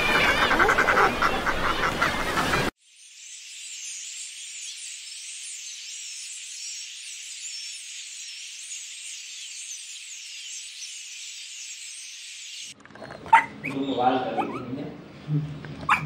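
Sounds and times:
chorus of high chirps: 2.8s - 14.7s.

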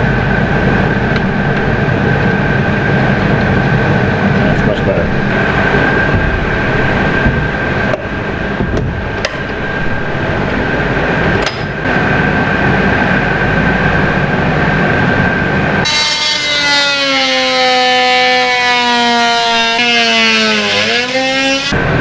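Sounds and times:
machine hum: 0.0s - 22.0s
oscillating multi-tool cutting: 15.8s - 21.8s.

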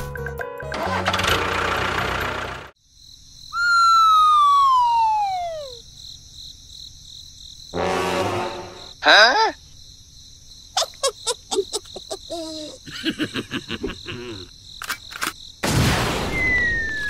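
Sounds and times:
whistle-like tone gliding downward: 3.6s - 5.8s, 16.4s - 17.0s.

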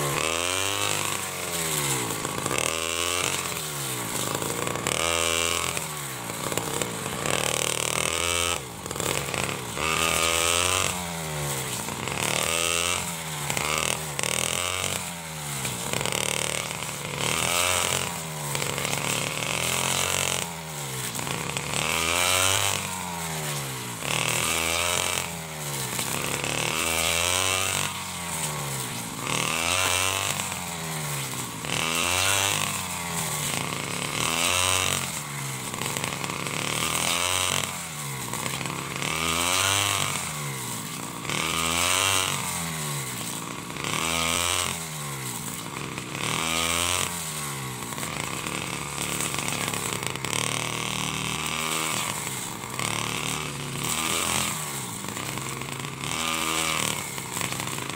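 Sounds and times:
brush cutter engine revving: 0.0s - 57.9s
grass cutting hiss: 0.0s - 57.9s.

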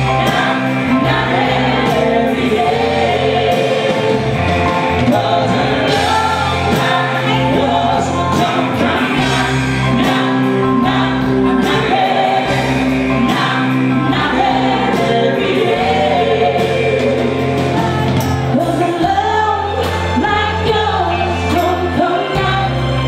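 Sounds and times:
live band playing: 0.0s - 23.0s
woman singing: 17.8s - 23.0s.

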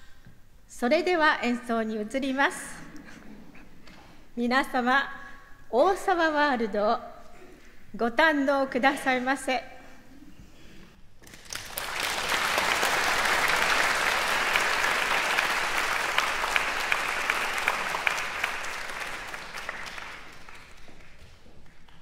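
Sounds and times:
audience applauding: 11.2s - 22.0s.

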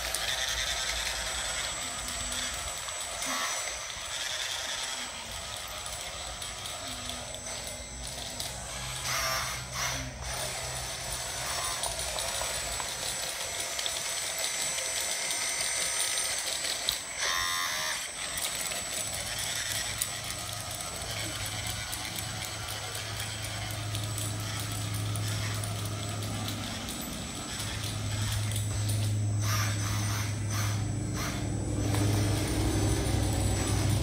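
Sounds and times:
electric motors whining: 0.0s - 34.0s.

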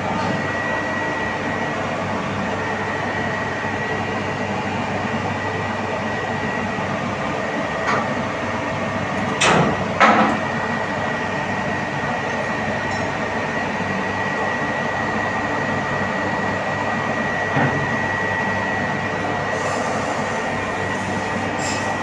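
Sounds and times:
machinery drone with high whine: 0.0s - 22.0s.

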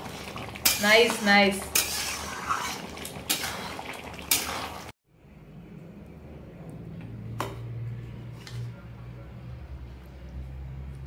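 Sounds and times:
metal spoon scraping pot: 0.6s - 4.9s.

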